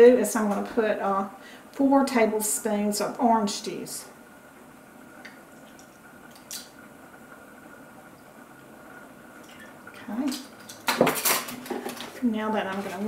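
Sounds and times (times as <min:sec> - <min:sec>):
juice trickling and dripping: 0:05.1 - 0:11.0.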